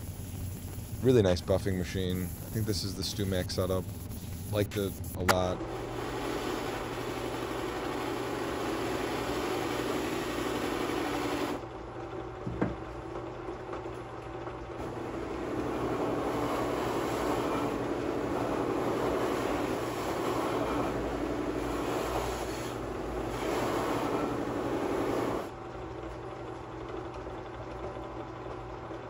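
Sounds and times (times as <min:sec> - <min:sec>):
buffing machine motor hum: 0:05.6 - 0:11.6, 0:14.8 - 0:25.5.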